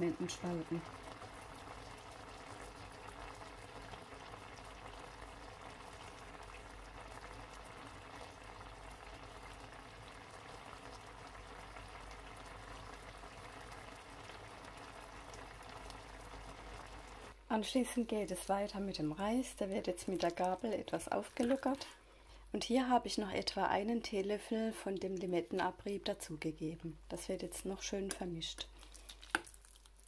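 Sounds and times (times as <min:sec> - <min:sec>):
sauce bubbling in a pan: 0:00.0 - 0:17.5, 0:18.1 - 0:22.5, 0:28.6 - 0:30.0.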